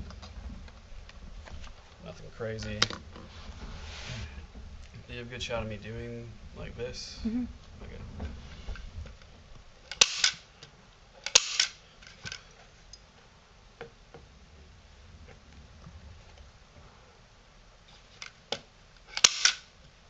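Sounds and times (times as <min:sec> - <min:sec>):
staple gun firing: 0:09.9 - 0:10.4, 0:11.3 - 0:11.8, 0:19.2 - 0:19.7.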